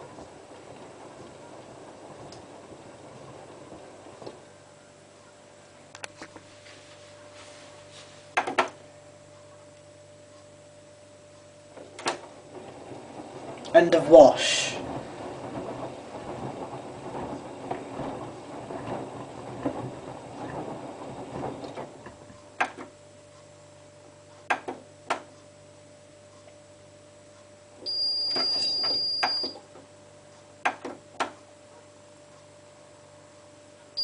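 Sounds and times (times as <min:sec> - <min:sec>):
faint machine hum: 0:00.0 - 0:34.0
washing machine tumbling laundry: 0:00.0 - 0:34.0
high beep: 0:27.9 - 0:29.6.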